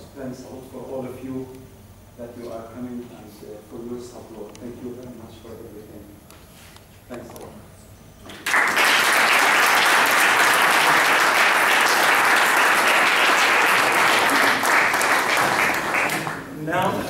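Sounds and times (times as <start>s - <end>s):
audience applauding: 8.3s - 16.6s.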